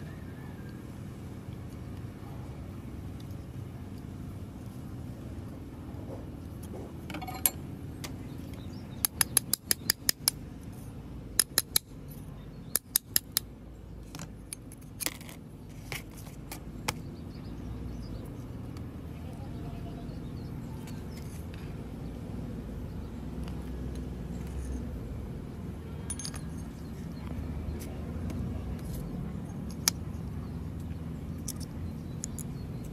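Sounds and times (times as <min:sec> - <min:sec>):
low background hum: 0:00.0 - 0:32.9
metal parts clicking and clinking: 0:07.1 - 0:08.2, 0:26.0 - 0:27.0, 0:31.4 - 0:32.9.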